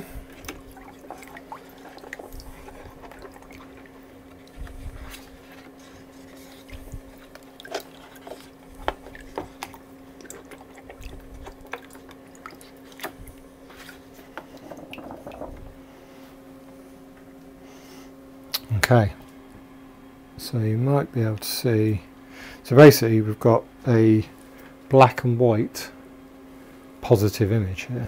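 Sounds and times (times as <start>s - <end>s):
water sloshing in a bucket: 0.0s - 15.8s
steady low hum: 0.0s - 28.0s
small splashes and drips: 0.3s - 15.6s.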